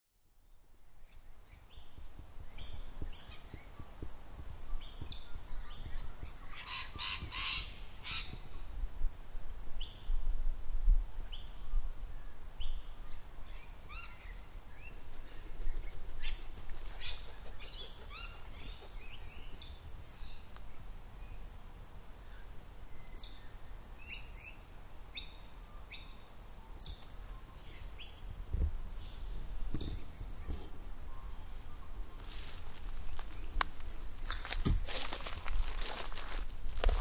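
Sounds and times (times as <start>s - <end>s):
wind rumble on microphone: 1.3s - 13.6s, 27.7s - 37.0s
birds chirping: 22.3s - 37.0s.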